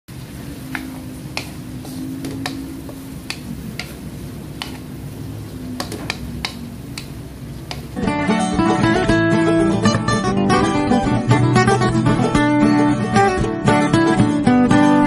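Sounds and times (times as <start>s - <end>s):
low steady hum: 0.1s - 13.3s
acoustic guitar music: 0.1s - 15.0s
wooden spoon tapping steel pan: 4.6s - 4.8s, 5.8s - 7.9s.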